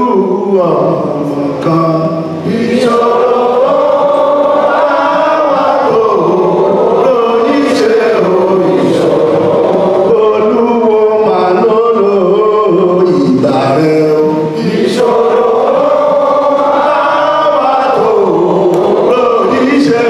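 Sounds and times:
group of voices chanting: 2.4 - 10.5, 14.5 - 20.0.

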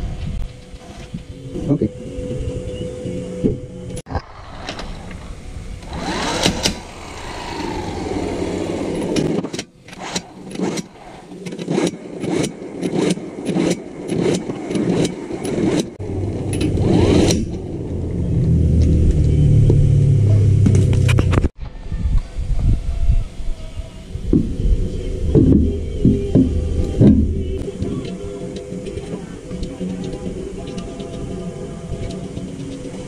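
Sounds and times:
electric impact wrench bursts: 4.2 - 9.4.

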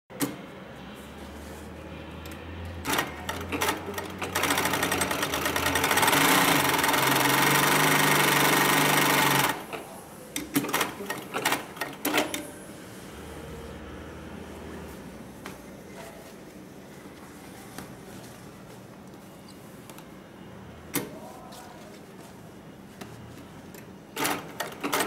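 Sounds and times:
sewing machine stitching: 2.8 - 9.8, 24.2 - 25.0.

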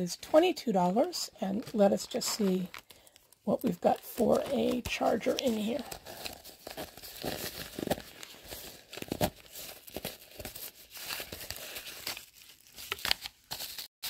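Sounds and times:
bubble wrap crinkling: 1.0 - 13.9.

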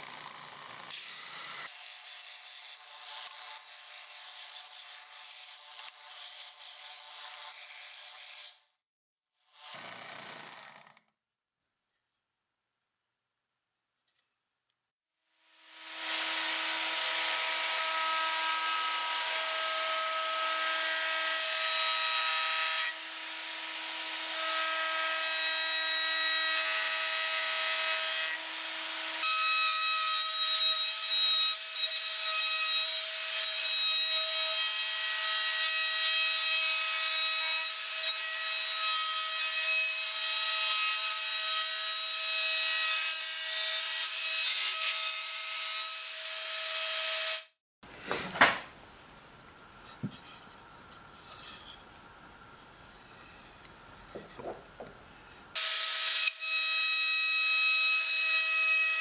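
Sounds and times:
router bit cutting wood: 9.5 - 11.1, 15.5 - 37.0
router whining: 9.6 - 11.1, 15.5 - 20.0.

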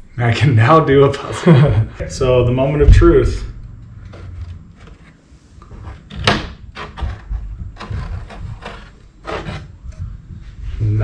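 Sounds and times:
wood scraping on wood: 3.9 - 10.1.

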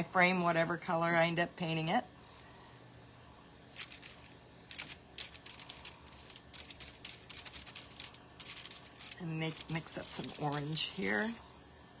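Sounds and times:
faint scratchy paintbrush strokes: 5.4 - 11.4.

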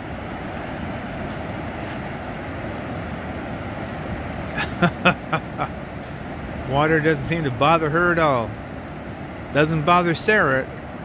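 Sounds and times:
surf rushing: 0.0 - 11.0
wind: 0.0 - 11.0.

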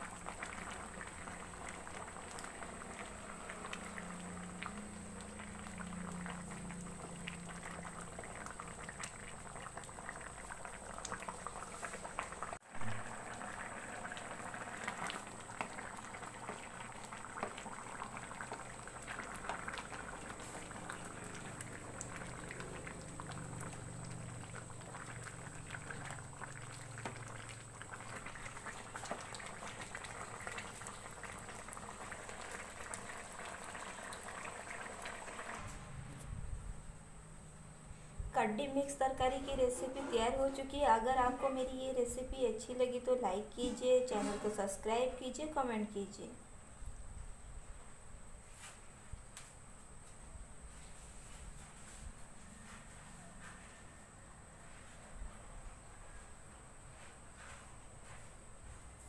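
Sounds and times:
curry bubbling and popping: 0.0 - 35.9.

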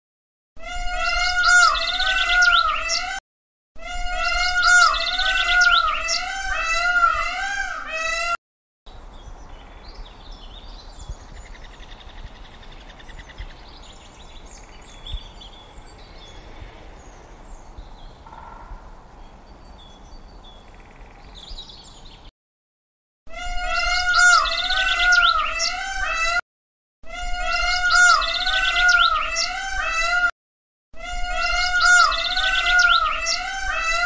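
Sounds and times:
peacock calling: 0.6 - 3.2, 3.8 - 8.4, 23.3 - 26.4, 27.1 - 30.3, 31.1 - 34.0.

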